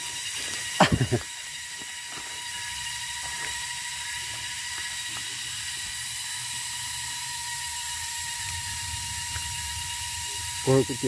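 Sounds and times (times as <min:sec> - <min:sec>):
faint high whine: 0:00.0 - 0:11.0
low rumble: 0:08.3 - 0:11.0.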